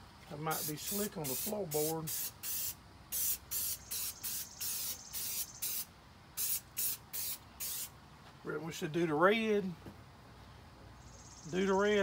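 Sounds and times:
aerosol can spraying: 0.5s - 7.9s.

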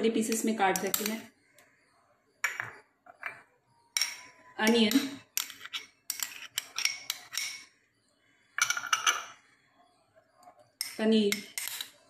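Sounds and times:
glass bowls clinking: 2.4s - 7.7s, 8.6s - 9.4s.

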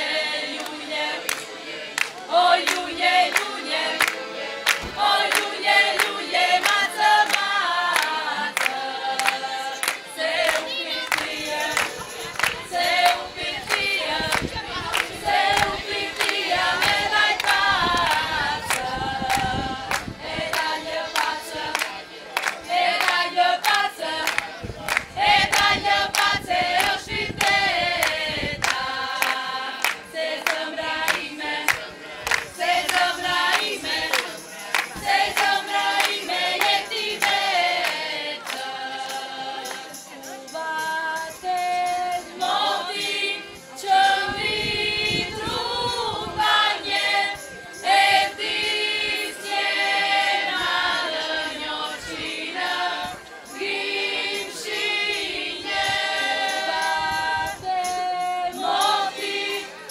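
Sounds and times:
women singing folk song: 0.0s - 59.9s
hand clapping: 0.5s - 38.7s, 39.7s - 39.9s.

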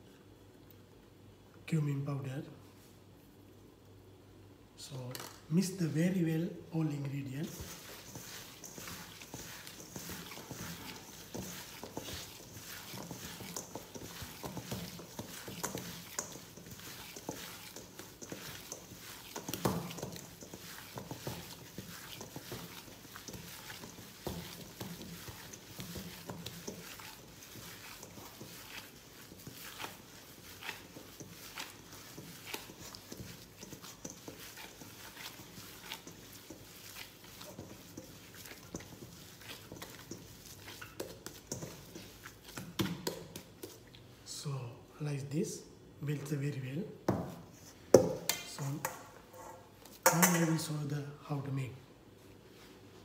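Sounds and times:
hands kneading minced meat: 5.6s - 44.6s, 49.6s - 50.9s.

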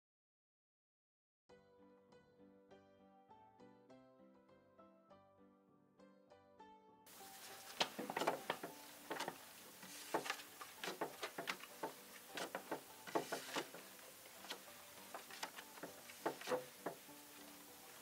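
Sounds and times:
playing cards dealt onto table: 7.2s - 17.1s.

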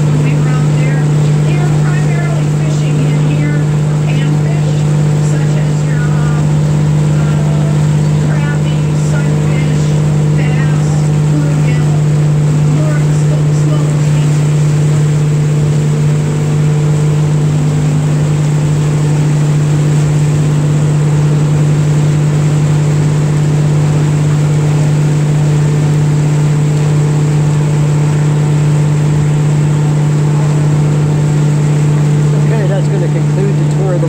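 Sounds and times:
boat engine droning: 0.0s - 34.0s
water rushing past hull: 0.0s - 34.0s.

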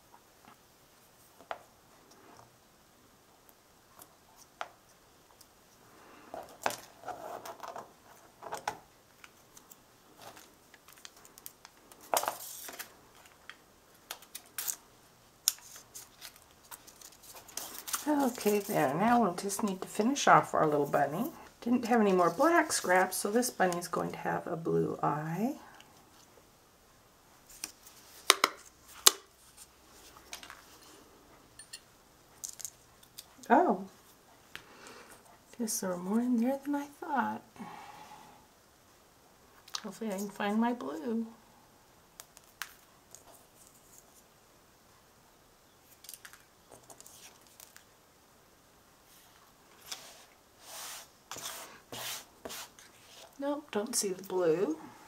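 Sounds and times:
paper rustling: 9.2s - 14.8s, 15.4s - 19.8s.

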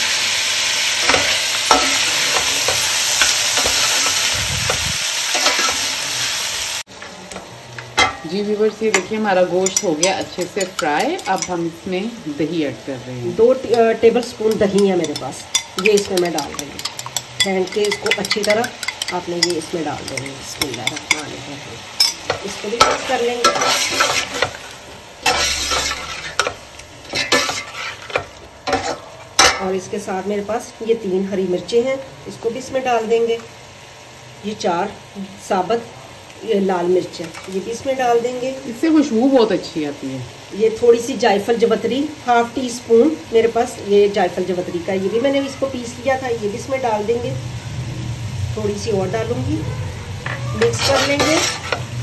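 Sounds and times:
meat and onions sizzling: 0.0s - 52.0s
metal spoon scraping pot: 8.9s - 11.6s, 13.6s - 21.3s, 22.0s - 24.6s, 25.2s - 29.6s, 50.2s - 51.9s.

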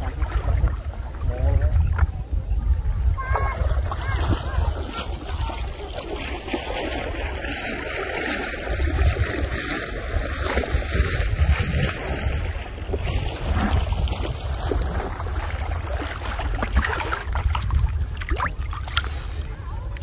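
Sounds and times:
water sloshing around wading person: 0.0s - 2.0s, 3.2s - 20.0s
wind on microphone: 0.0s - 20.0s.

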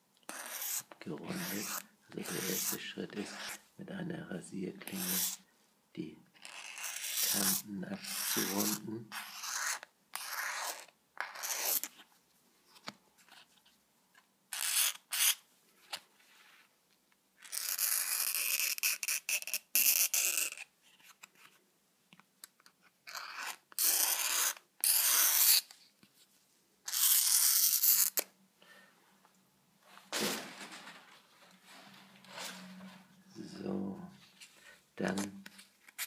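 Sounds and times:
razor blade scraping plastic: 6.4s - 11.9s, 17.4s - 20.7s, 23.0s - 25.8s.

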